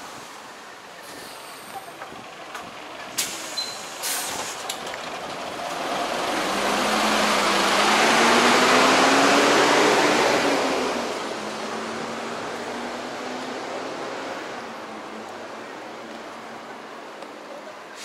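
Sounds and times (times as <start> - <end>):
heavy vehicle driving past: 3.4 - 15.0.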